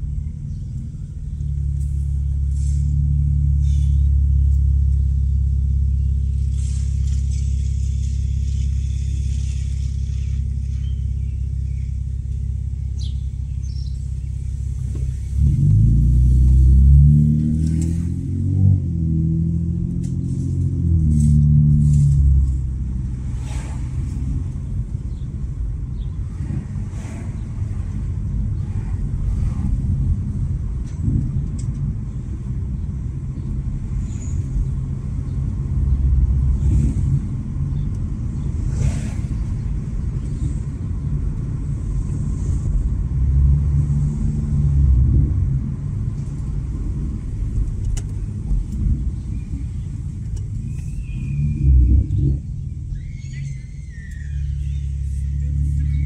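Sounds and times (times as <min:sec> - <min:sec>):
car exhaust rumbling: 0:00.0 - 0:56.0.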